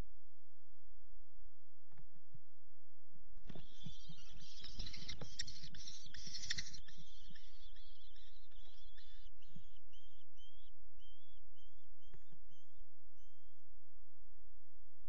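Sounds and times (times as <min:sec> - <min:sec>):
young kestrels calling shrilly: 0:03.5 - 0:13.5.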